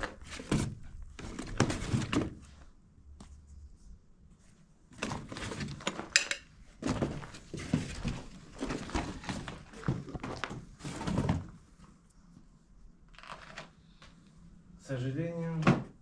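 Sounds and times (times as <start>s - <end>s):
rustling: 6.8s - 14.3s.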